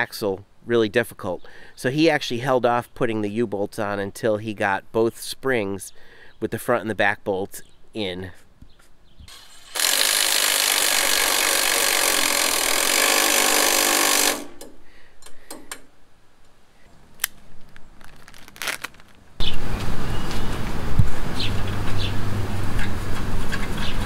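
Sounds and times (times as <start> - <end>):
impact wrench running: 9.4 - 14.7.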